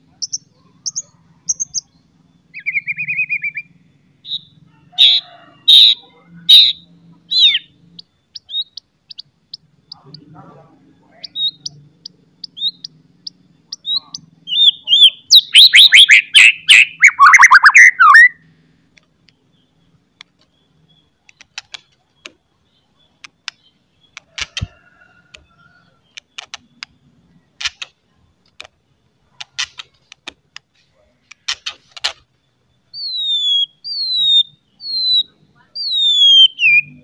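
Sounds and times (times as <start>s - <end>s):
bird clicks and chips: 21.2s - 22.4s, 23.2s - 25.5s, 26.1s - 27.0s, 27.6s - 32.3s.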